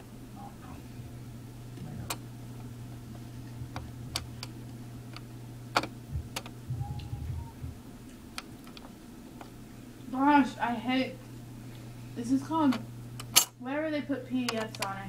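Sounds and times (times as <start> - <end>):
steady low hum: 0.0 - 15.0
soft low handling rumble: 0.4 - 10.1.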